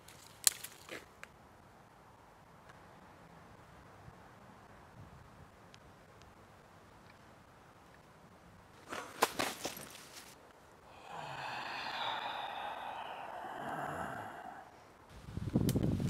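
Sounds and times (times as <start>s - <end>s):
raspy breath-like exhale: 10.9s - 14.9s.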